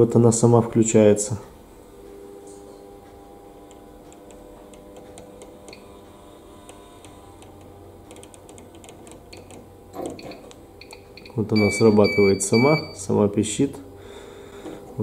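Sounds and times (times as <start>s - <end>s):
furnace hum: 0.0s - 15.0s
control knob clicking: 3.7s - 5.8s, 6.6s - 11.0s.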